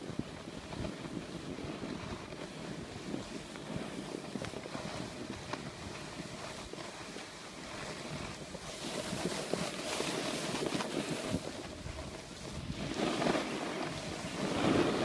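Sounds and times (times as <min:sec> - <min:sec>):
snowboard scraping over snow: 0:00.0 - 0:15.0
wind buffeting microphone: 0:07.7 - 0:15.0.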